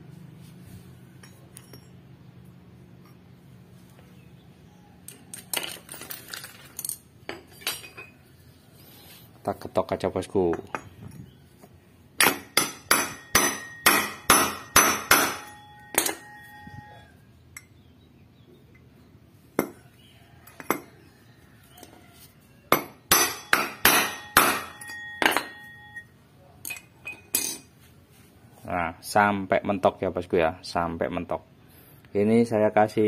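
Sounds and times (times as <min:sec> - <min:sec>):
hammer striking steel drift: 0:12.2 - 0:17.0, 0:22.8 - 0:26.0.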